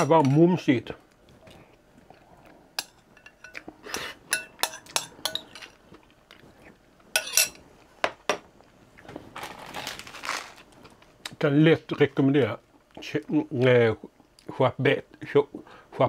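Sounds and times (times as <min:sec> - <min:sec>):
spoon clinking on glass bowl: 0:04.3 - 0:05.7, 0:07.2 - 0:07.6.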